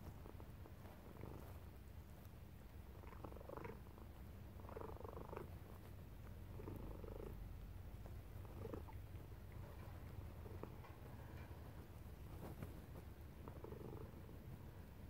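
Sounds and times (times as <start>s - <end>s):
faint low pulsing rumble: 0.0s - 15.0s.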